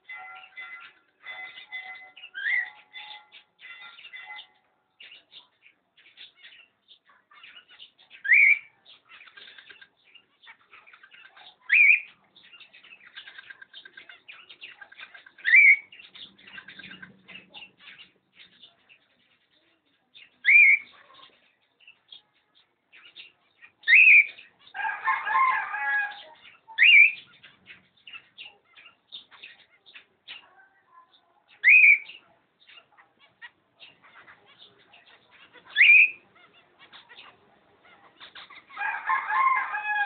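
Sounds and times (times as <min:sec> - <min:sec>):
cockatiel chattering call: 0:31.6 - 0:38.8.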